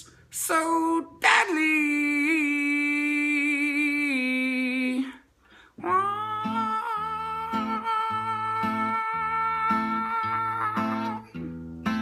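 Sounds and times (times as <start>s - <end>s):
acoustic guitar picking: 5.8s - 12.0s.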